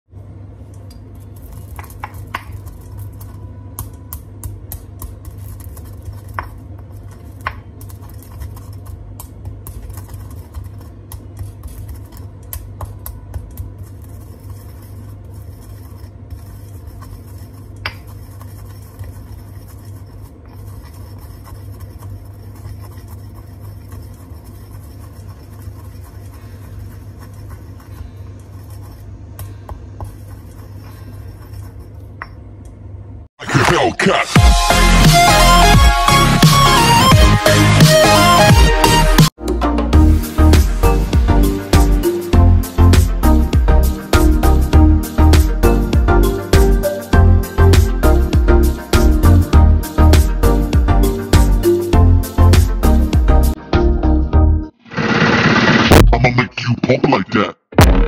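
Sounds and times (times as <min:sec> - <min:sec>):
pestle grinding peppercorns in mortar: 0:01.2 - 0:30.7.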